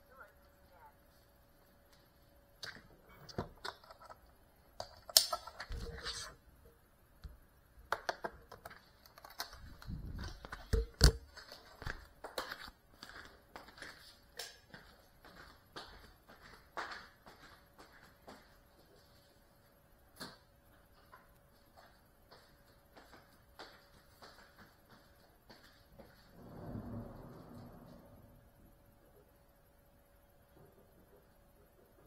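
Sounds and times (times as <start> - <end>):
drone handling clicks and knocks: 2.6 - 5.8.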